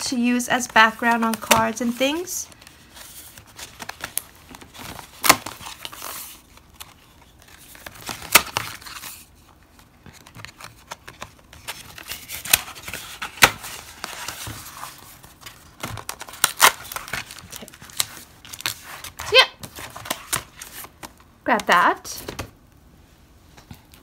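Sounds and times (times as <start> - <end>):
cardstock sheets rustling: 0.0 - 22.5.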